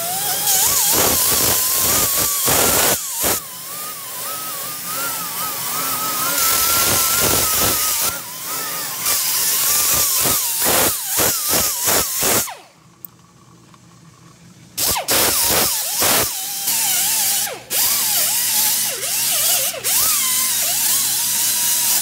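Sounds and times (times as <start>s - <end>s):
exhaust air hissing: 0.0s - 12.5s
pneumatic tool motor whine: 0.0s - 12.7s, 14.8s - 22.0s.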